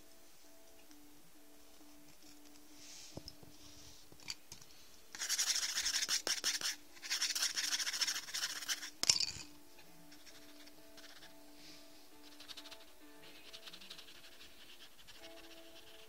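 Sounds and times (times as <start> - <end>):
pencil shading on paper: 5.1 - 8.9, 10.1 - 16.0.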